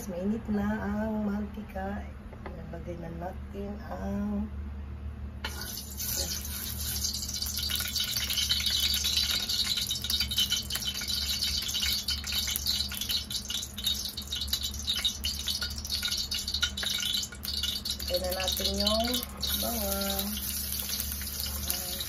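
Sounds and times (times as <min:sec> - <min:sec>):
oil sizzling in a wok: 0:05.4 - 0:22.0.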